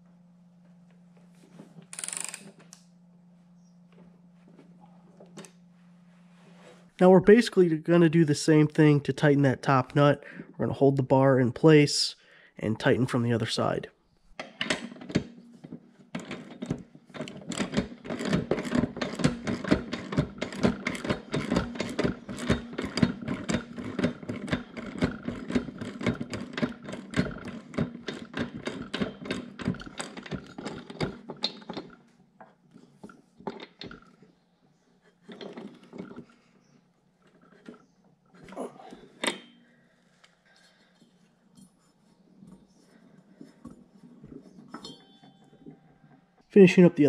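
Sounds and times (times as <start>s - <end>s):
ratcheting wrench clicking: 1.9s - 2.5s.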